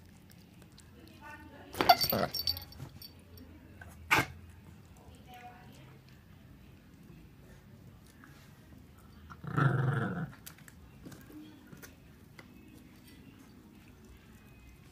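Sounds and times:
dog growling: 9.3s - 10.5s.

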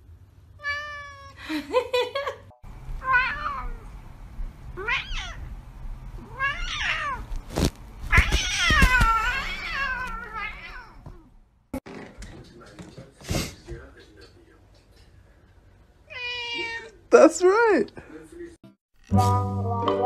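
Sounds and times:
cats meowing: 0.6s - 1.4s, 3.0s - 4.0s, 4.7s - 5.5s, 6.2s - 7.4s, 8.1s - 11.3s, 16.1s - 17.0s.

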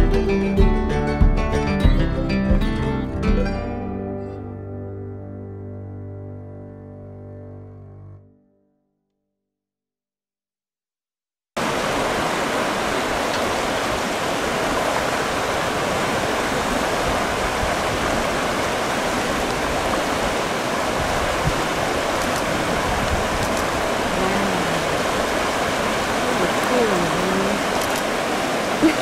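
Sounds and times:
fast-flowing river water: 11.6s - 29.0s.

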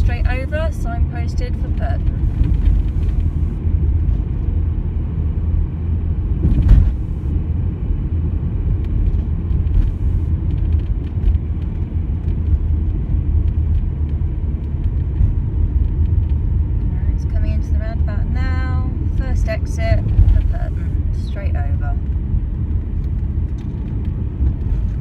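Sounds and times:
car engine and tyre rumble: 0.0s - 25.0s
brief thump: 6.4s - 7.2s.

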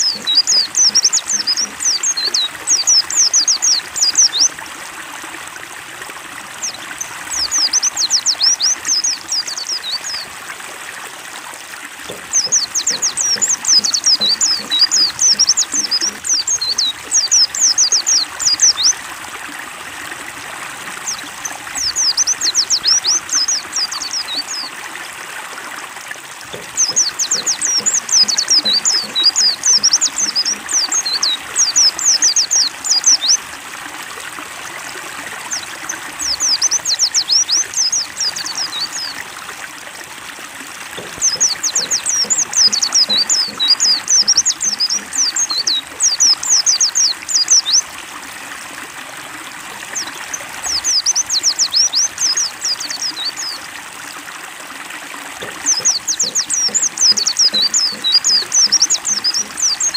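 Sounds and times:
birds twittering: 0.0s - 4.5s, 12.1s - 19.0s, 21.0s - 24.7s, 26.5s - 33.4s, 40.9s - 47.8s, 55.4s - 59.9s
stream water trickling: 0.0s - 59.9s.

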